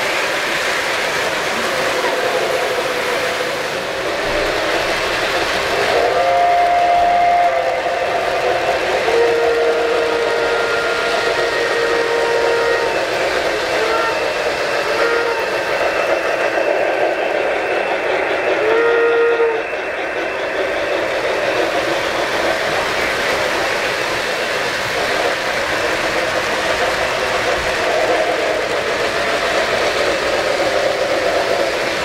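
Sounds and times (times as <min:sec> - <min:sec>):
model trains rumbling on track: 0:00.0 - 0:32.0
electronic train whistle: 0:05.8 - 0:16.6, 0:18.5 - 0:20.2.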